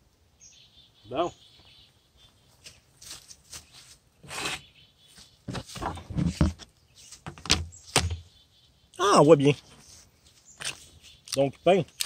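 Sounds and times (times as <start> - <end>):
handling rustles and knocks: 5.2 - 8.3.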